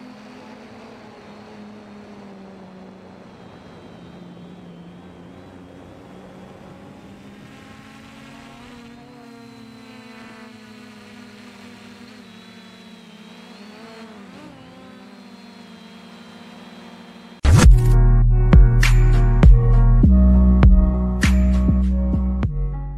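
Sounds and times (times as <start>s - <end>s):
quadcopter motors buzzing: 0.0s - 18.0s
loud music: 17.5s - 22.9s.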